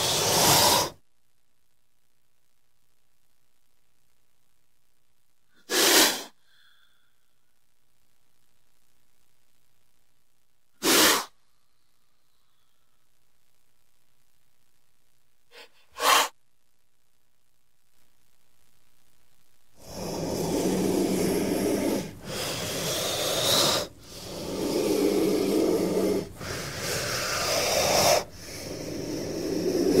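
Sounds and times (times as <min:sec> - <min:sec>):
snake hissing: 0:00.0 - 0:01.0, 0:05.6 - 0:07.0, 0:10.8 - 0:11.5, 0:15.5 - 0:16.4, 0:19.8 - 0:30.0.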